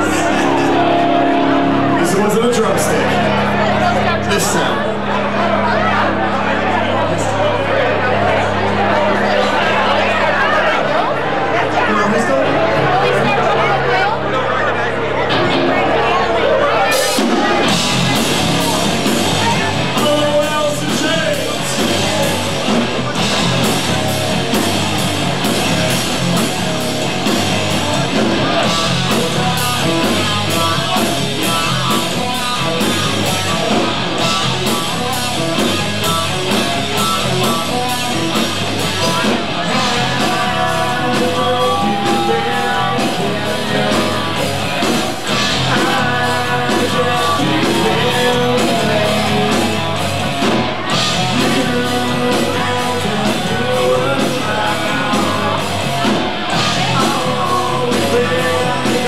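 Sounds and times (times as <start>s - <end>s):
electric guitars: 0.0s - 59.0s
drum kit beat: 17.0s - 59.0s
person singing: 37.0s - 59.0s.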